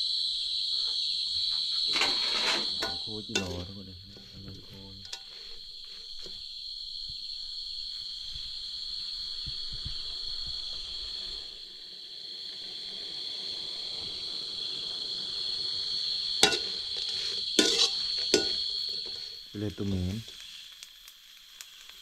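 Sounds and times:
crickets trilling: 0:00.0 - 0:22.0
insects frying in a wok: 0:00.0 - 0:22.0
spatula striking wok: 0:02.0 - 0:04.3, 0:16.4 - 0:19.3.

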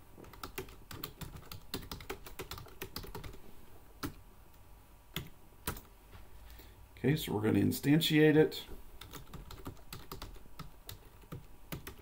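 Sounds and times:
computer keyboard typing: 0:00.2 - 0:03.4, 0:04.0 - 0:04.2, 0:05.2 - 0:05.9, 0:09.0 - 0:12.0.

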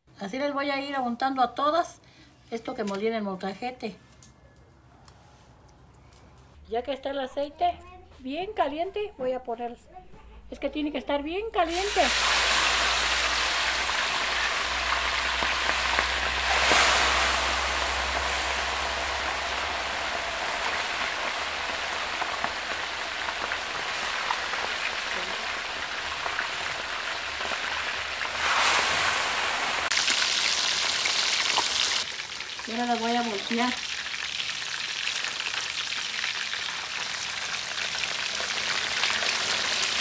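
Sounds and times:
fish deep-frying in oil: 0:11.7 - 0:40.0.

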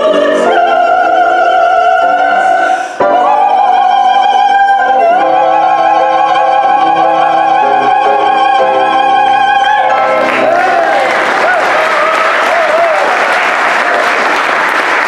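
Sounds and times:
female trio singing operatically: 0:00.0 - 0:11.6.

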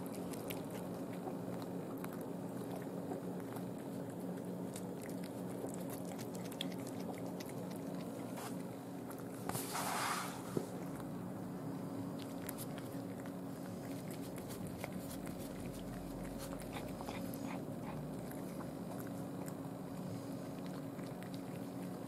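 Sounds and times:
cat chewing with wet crunches: 0:00.0 - 0:09.7, 0:10.5 - 0:22.0
short rustle: 0:09.5 - 0:10.7.

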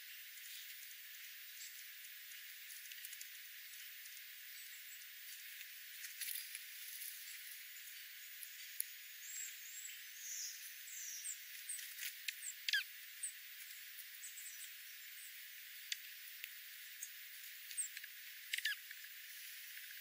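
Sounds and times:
steady hiss: 0:00.0 - 0:20.0
birds pecking seed on gravel: 0:01.6 - 0:04.4, 0:05.0 - 0:09.6, 0:10.5 - 0:14.9
small birds chip calls: 0:03.0 - 0:20.0.

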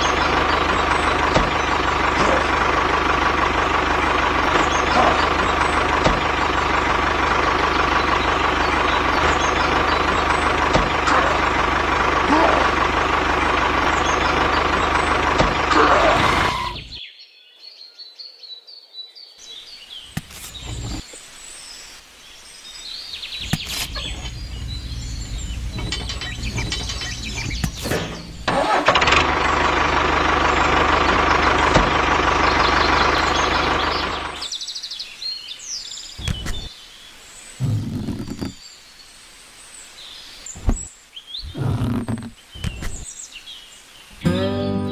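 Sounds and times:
tractor engine running: 0:00.0 - 0:17.0, 0:20.1 - 0:21.0, 0:23.4 - 0:34.6, 0:36.2 - 0:36.7, 0:40.6 - 0:40.9, 0:41.5 - 0:43.1, 0:44.2 - 0:44.9.

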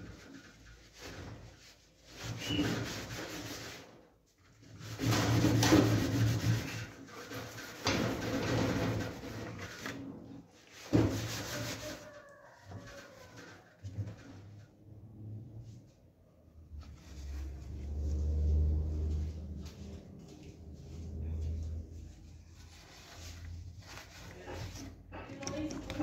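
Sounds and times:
steel wool scrubbing metal: 0:04.7 - 0:09.9, 0:10.6 - 0:12.2.

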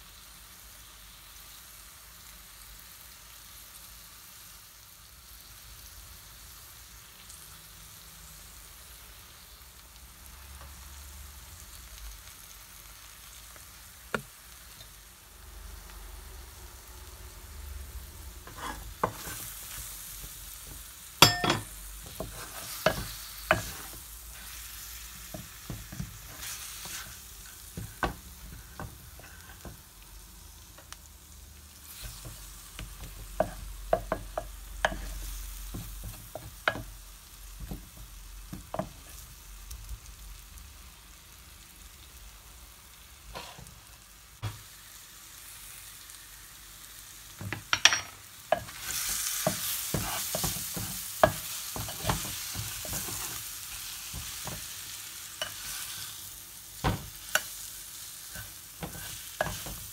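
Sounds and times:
food sizzling in a pan: 0:00.0 - 0:59.9
spoons knocking and scraping pan: 0:20.6 - 0:24.0, 0:47.4 - 0:53.4, 0:58.3 - 0:59.9.

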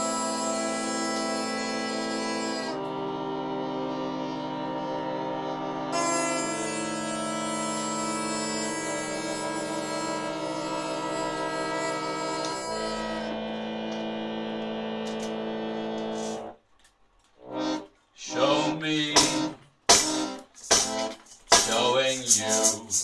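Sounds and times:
electric keyboard organ chords: 0:00.0 - 0:16.6, 0:17.4 - 0:23.0
music with voice and percussion: 0:19.2 - 0:23.0.

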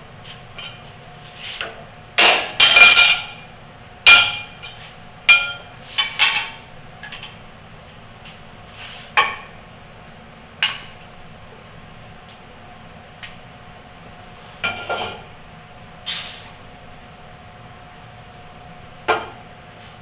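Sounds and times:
steel tools clinking on metal: 0:02.2 - 0:03.4.

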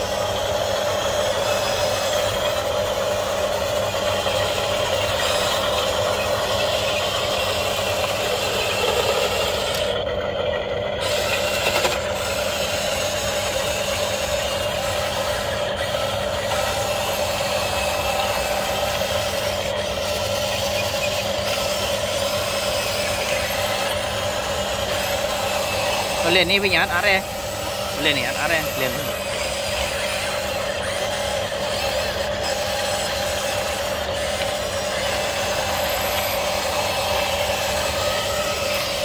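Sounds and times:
toy excavator electric motors running: 0:00.0 - 0:39.0.

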